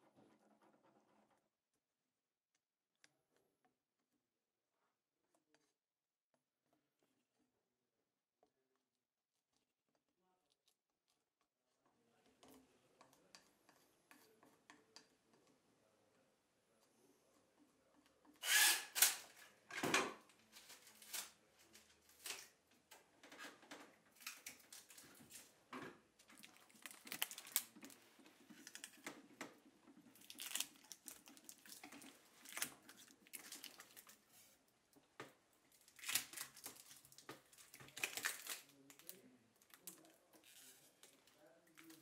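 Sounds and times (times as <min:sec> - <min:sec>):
packing tape tearing: 0:18.4 - 0:19.3, 0:26.8 - 0:27.7.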